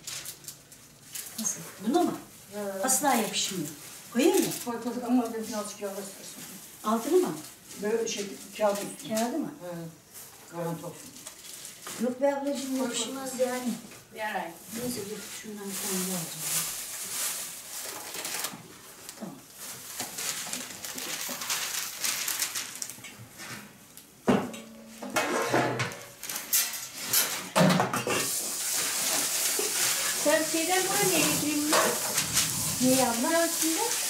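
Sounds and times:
dishes and pots clattering: 0:24.3 - 0:30.3, 0:31.1 - 0:32.5
steady hiss: 0:28.1 - 0:34.0.

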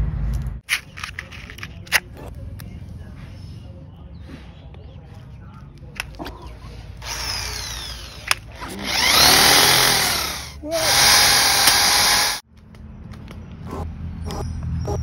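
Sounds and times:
electric drill boring into wood: 0:07.0 - 0:12.4.

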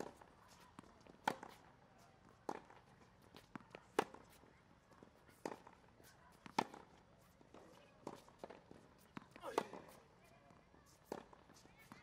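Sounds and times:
tennis ball hit by racket: 0:00.0 - 0:01.6, 0:02.4 - 0:04.4, 0:05.3 - 0:10.0, 0:11.0 - 0:12.0.

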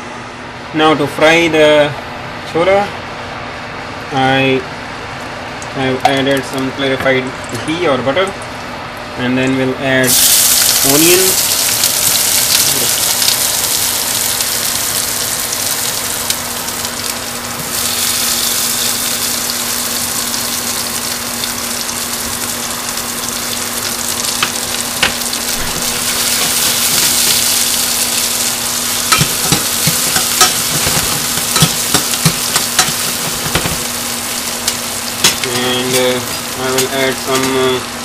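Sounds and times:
onions sizzling in pan: 0:10.1 - 0:38.0.

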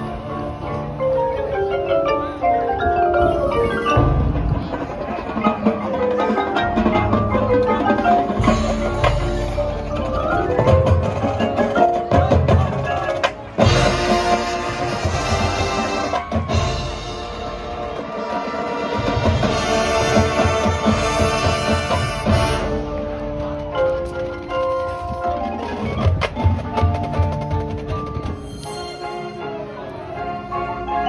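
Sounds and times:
marimbas playing quick runs: 0:02.1 - 0:14.5
marching band playing: 0:03.1 - 0:31.0.

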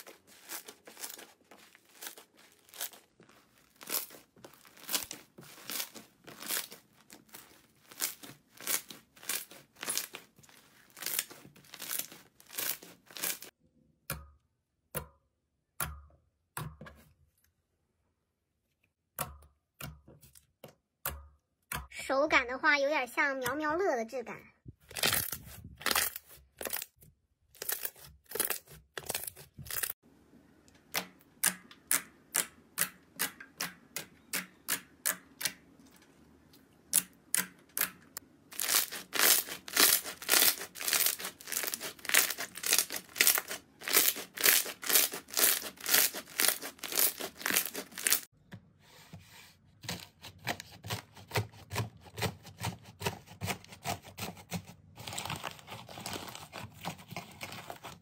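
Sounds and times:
fluffy slime crackling and tearing: 0:00.0 - 0:13.6, 0:24.8 - 0:27.0, 0:27.6 - 0:30.0, 0:38.5 - 0:48.3, 0:54.8 - 0:58.0.

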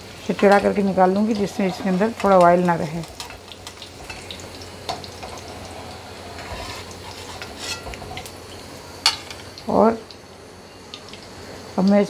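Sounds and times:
cheese sizzling in hot oil: 0:00.0 - 0:12.0
steel spoon scraping pan: 0:01.2 - 0:02.5, 0:05.2 - 0:08.3.

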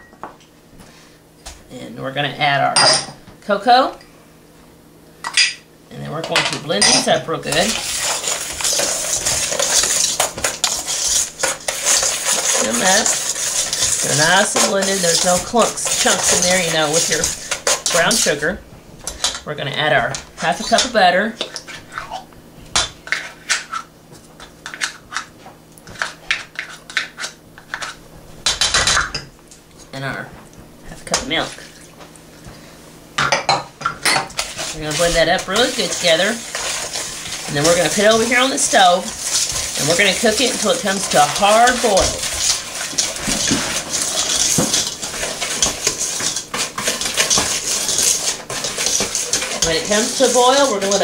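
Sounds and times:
spatula scraping a measuring cup: 0:06.8 - 0:19.4, 0:34.3 - 0:51.0.

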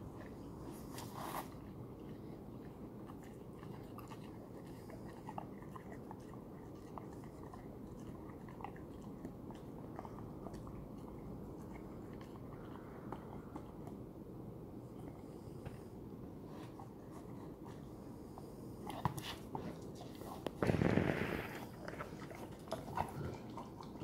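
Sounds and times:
dog chewing tennis ball: 0:18.8 - 0:24.0.

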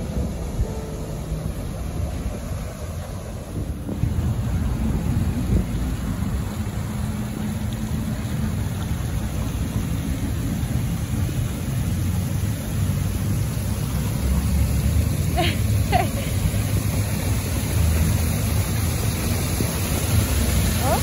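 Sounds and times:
wind rumbling on microphone: 0:00.0 - 0:15.3
fountain water splashing: 0:00.0 - 0:21.0.

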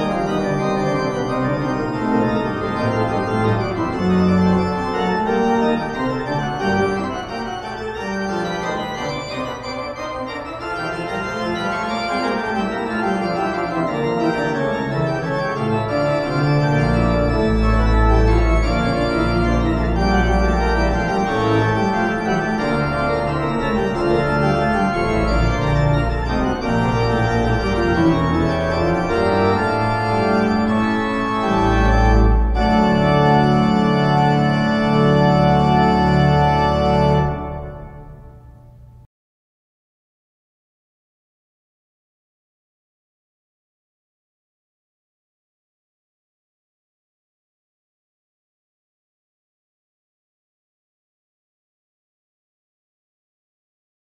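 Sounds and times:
sustained organ chords: 0:00.0 - 0:39.1.

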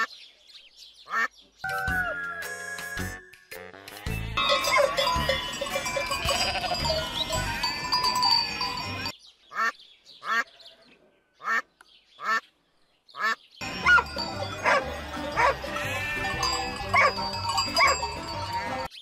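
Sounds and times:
background music: 0:01.7 - 0:09.1, 0:13.6 - 0:19.0
sheep and goats bleating: 0:04.0 - 0:11.6, 0:13.6 - 0:18.9.

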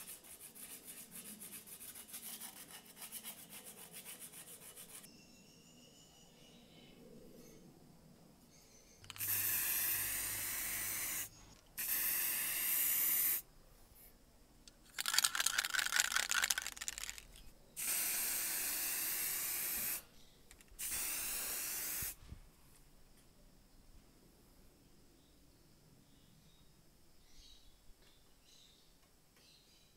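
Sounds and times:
spray can ball rattling: 0:09.0 - 0:13.4, 0:14.9 - 0:20.0, 0:20.8 - 0:22.2
spray paint can hissing: 0:09.1 - 0:13.4, 0:15.0 - 0:20.0, 0:20.8 - 0:22.2.

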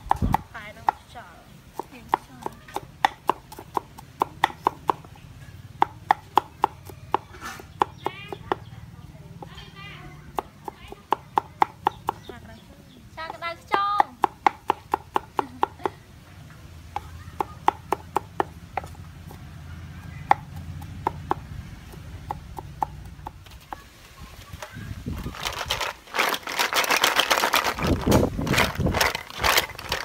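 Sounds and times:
rattling and crackling: 0:23.3 - 0:30.0.

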